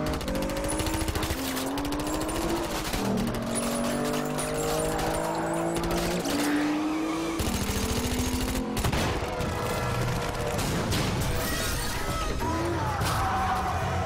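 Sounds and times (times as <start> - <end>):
engine revving through gears: 0.0 - 10.8.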